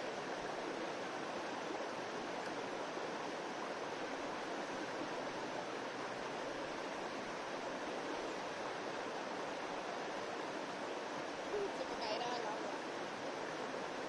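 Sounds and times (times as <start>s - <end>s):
stream running over rocks: 0.0s - 14.0s.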